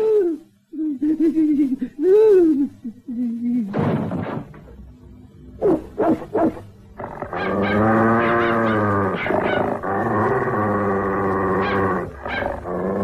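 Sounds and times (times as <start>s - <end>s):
cartoon dog growling: 5.6s - 13.0s
cartoon dog whining: 5.6s - 13.0s.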